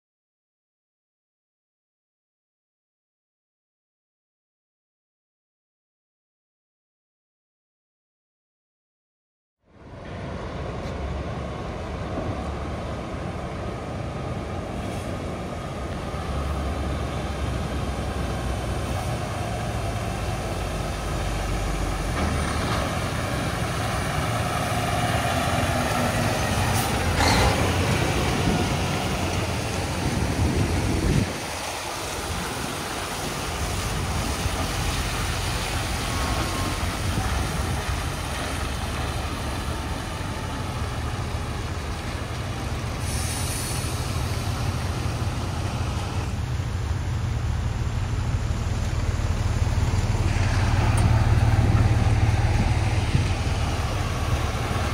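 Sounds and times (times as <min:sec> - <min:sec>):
diesel truck engine rumbling: 0:09.7 - 0:54.9
short air hiss: 0:43.0 - 0:44.1.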